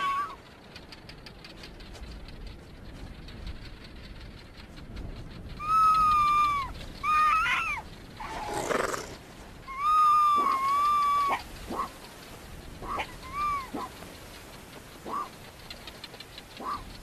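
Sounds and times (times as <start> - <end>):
foxes whining yelps: 0.0 - 0.4, 5.6 - 12.1, 12.8 - 14.1, 14.9 - 15.4, 16.6 - 17.0.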